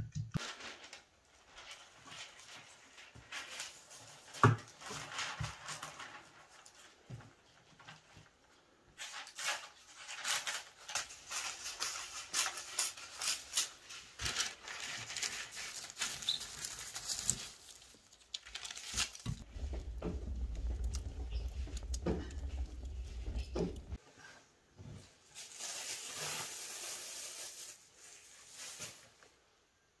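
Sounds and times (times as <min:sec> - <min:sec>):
parchment paper crinkling: 0:00.4 - 0:07.0, 0:09.0 - 0:24.0
wood fire crackling: 0:10.9 - 0:24.0.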